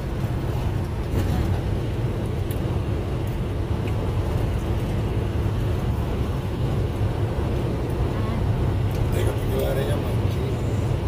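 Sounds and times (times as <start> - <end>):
truck engine rumble from cab: 0.0 - 11.0.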